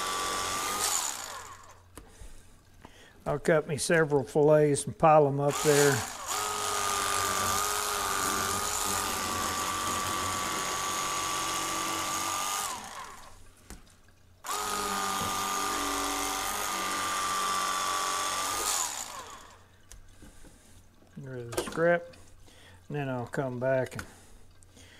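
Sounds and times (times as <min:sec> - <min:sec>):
electric fillet knife whining: 0:00.0 - 0:01.9, 0:05.4 - 0:13.4, 0:14.4 - 0:19.7.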